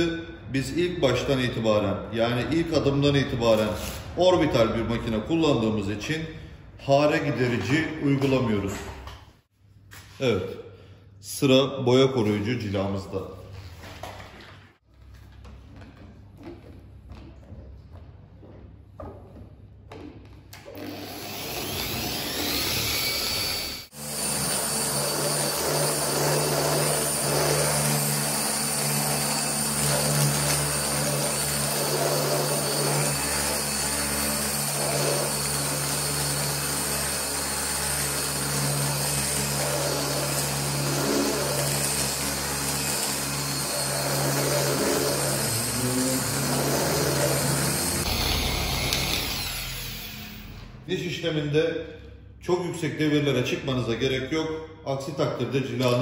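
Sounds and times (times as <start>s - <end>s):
orbital polisher running: 20.7s - 50.6s.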